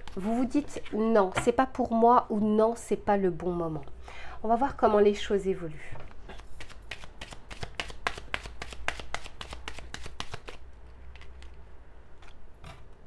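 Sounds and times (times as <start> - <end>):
cards being shuffled: 6.4 - 11.6.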